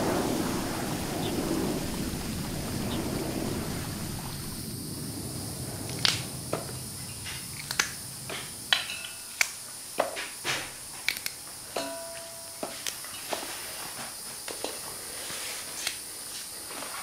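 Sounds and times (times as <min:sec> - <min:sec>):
steady outdoor hiss: 0:00.0 - 0:17.0
vegetable stalks snapping: 0:11.0 - 0:11.4.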